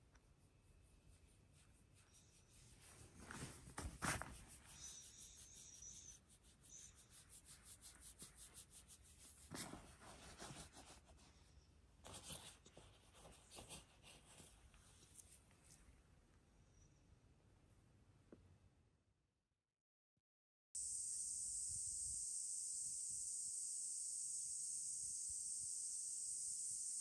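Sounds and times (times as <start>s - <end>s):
brushing sounds: 0.2s - 11.5s
fur and fabric rubbing: 2.4s - 5.8s.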